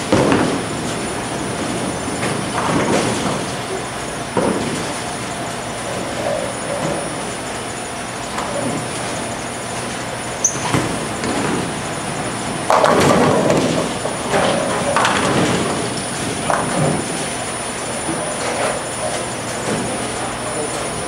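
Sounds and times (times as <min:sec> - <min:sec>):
bowling ball thud: 0:00.1 - 0:00.8, 0:12.4 - 0:17.2
bowling pins crashing: 0:00.1 - 0:03.6, 0:10.6 - 0:17.3
balls rolling on lanes: 0:00.1 - 0:03.7, 0:10.6 - 0:20.0.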